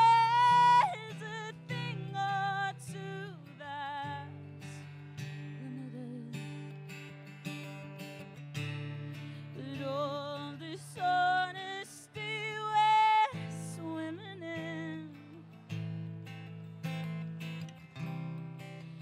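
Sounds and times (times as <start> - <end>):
woman singing: 0.0 - 6.9, 9.1 - 15.8
strummed acoustic guitar: 0.0 - 19.0.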